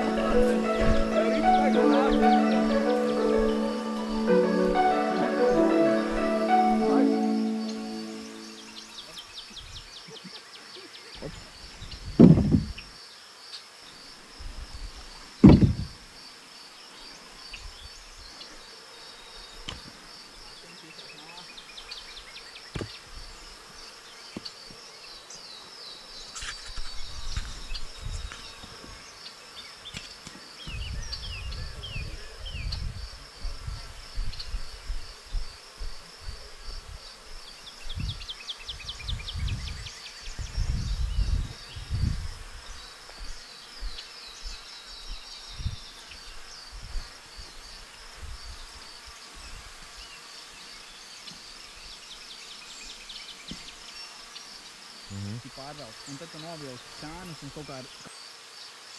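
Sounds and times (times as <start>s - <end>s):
bumps on microphone: 12.2s - 12.8s, 15.4s - 15.9s.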